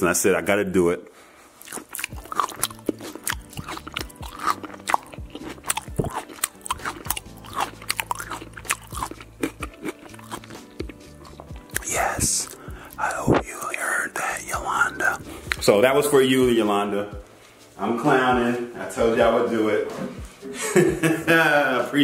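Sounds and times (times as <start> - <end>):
crunching raw vegetables: 1.6 - 13.2.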